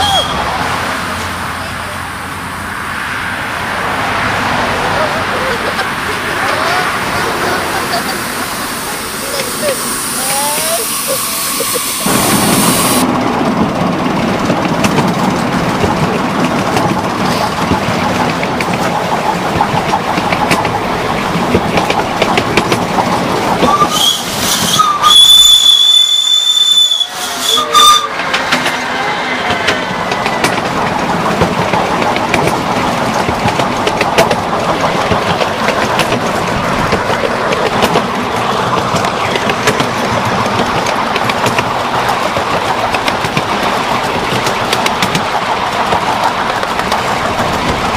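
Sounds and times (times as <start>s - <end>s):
shrill steam whistle: 0.0s - 0.5s, 9.1s - 13.0s, 23.6s - 28.2s
train wheels clicking over rail joints: 5.5s - 47.9s.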